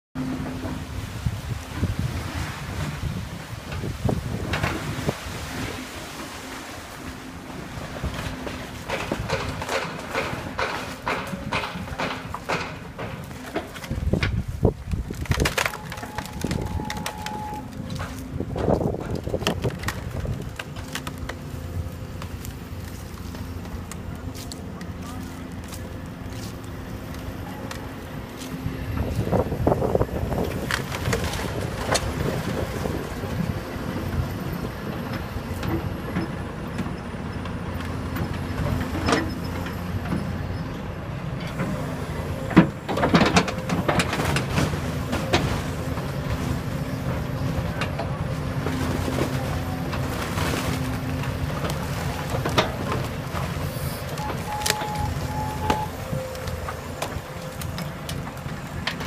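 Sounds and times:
excavator diesel engine running: 0.2s - 59.0s
splintering lumber cracks and crashes: 8.1s - 24.6s, 48.6s - 59.0s.

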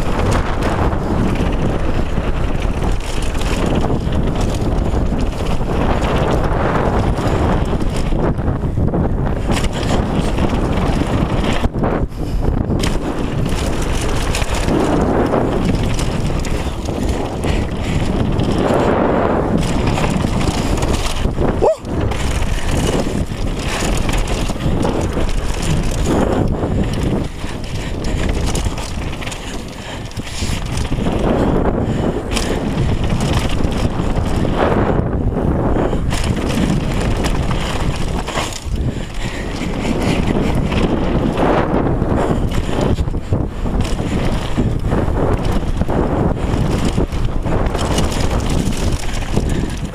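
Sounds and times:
bike tyres rolling on gravel: 0.0s - 49.9s
wind buffeting microphone: 0.0s - 49.9s.

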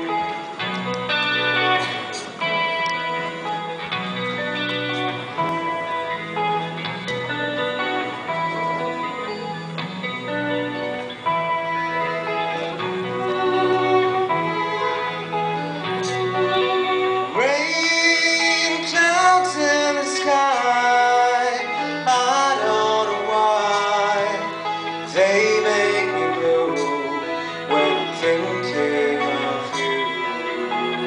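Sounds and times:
electric guitar: 0.0s - 31.0s
live band playing: 0.0s - 31.0s
violin: 0.0s - 31.0s
person singing: 11.7s - 31.0s.

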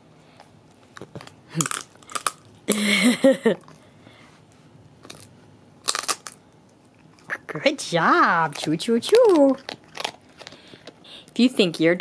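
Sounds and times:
dog crunching a treat: 0.4s - 2.8s, 5.0s - 7.4s, 8.2s - 11.8s.

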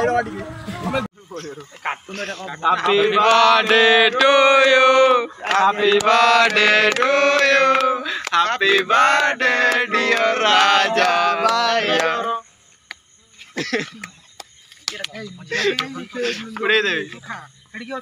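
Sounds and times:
men singing a chant: 2.2s - 12.5s.

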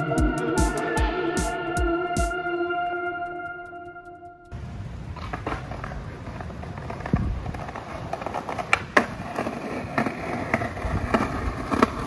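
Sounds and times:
skateboard wheels rumbling on concrete: 4.5s - 12.0s
skateboard wheels clacking over joints: 4.6s - 12.0s.

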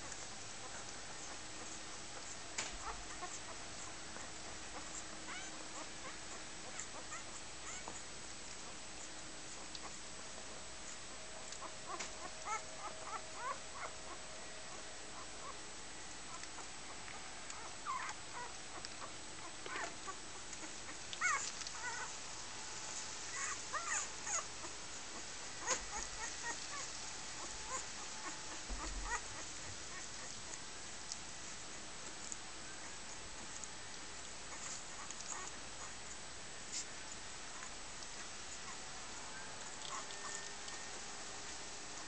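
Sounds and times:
puppies squeaking and whimpering: 0.0s - 8.8s, 11.4s - 15.6s, 16.3s - 22.2s, 23.3s - 30.6s, 34.5s - 36.0s, 39.6s - 41.0s.

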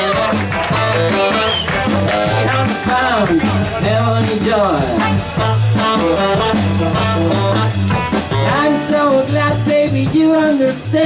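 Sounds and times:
tenor saxophone: 0.0s - 3.9s, 4.8s - 9.1s
bass guitar: 0.0s - 11.0s
drums: 0.0s - 11.0s
electric guitar: 0.0s - 11.0s.

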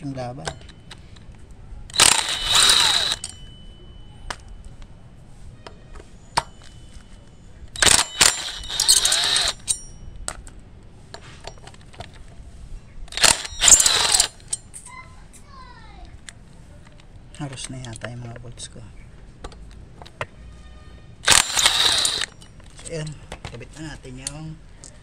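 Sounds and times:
small metal clicks: 0.4s - 3.4s, 7.8s - 10.6s, 13.1s - 14.9s, 21.2s - 23.0s
power drill running in bursts: 1.9s - 3.3s, 7.8s - 9.7s, 13.1s - 14.4s, 21.2s - 22.4s.

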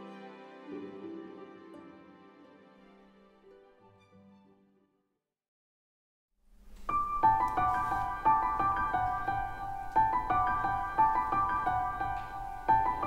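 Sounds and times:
gentle piano melody: 6.6s - 13.0s.

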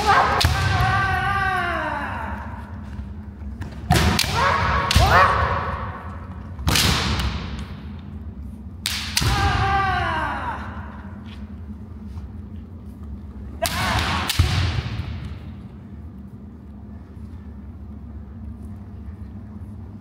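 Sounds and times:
loud shouted kiai: 0.0s - 2.6s, 4.0s - 6.0s, 9.2s - 11.1s, 13.6s - 14.4s.

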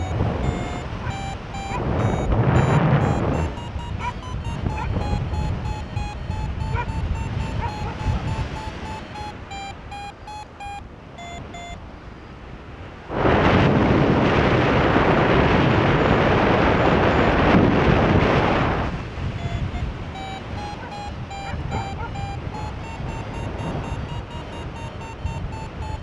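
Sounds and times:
electronic beeping music: 0.0s - 11.8s, 19.4s - 26.0s
low wind-like rumble: 12.6s - 20.1s.

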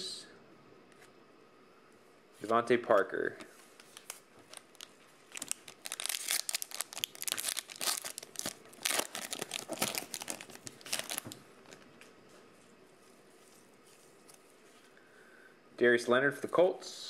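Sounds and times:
foil wrapper crinkling: 3.8s - 11.9s.

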